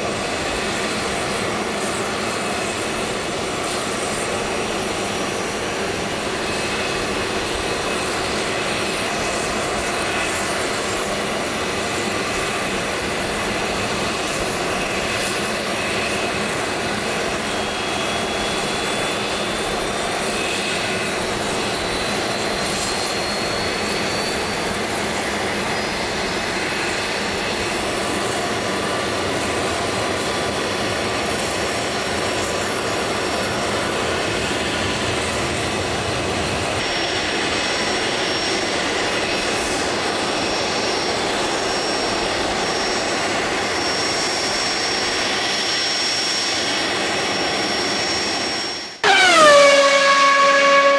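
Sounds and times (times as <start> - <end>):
jet engine rush: 0.0 - 50.9
faint high whine: 48.8 - 50.9.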